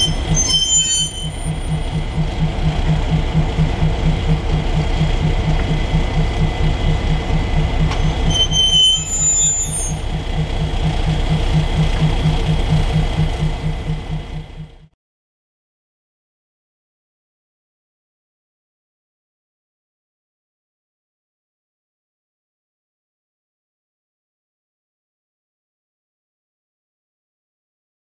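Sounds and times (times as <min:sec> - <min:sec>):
high-pitched wheel squeal: 0:00.0 - 0:02.1, 0:07.9 - 0:10.2
locomotive diesel engine beating: 0:00.0 - 0:14.9.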